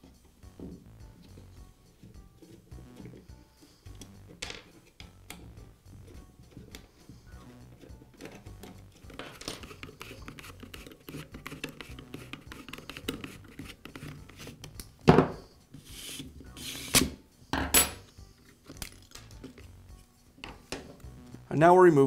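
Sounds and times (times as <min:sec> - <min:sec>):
tools knocking on wooden workbench: 0:15.0 - 0:15.4, 0:17.5 - 0:17.9.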